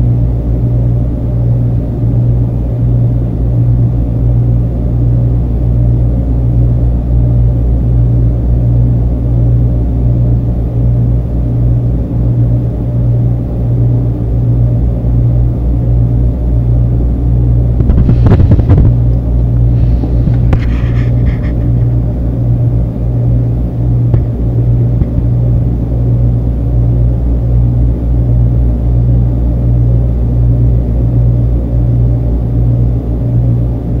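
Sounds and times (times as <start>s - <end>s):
deep hum: 0.0s - 34.0s
loud low rumble: 16.4s - 26.0s.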